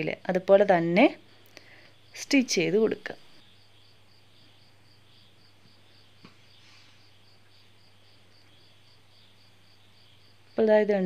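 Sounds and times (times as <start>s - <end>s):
insect chirping: 0.0s - 11.0s.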